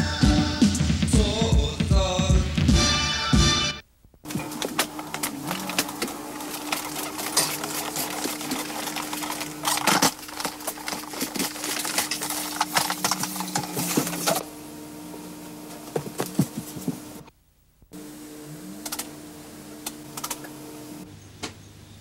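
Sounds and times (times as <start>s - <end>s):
vacuum cleaner hum: 4.3s - 17.3s.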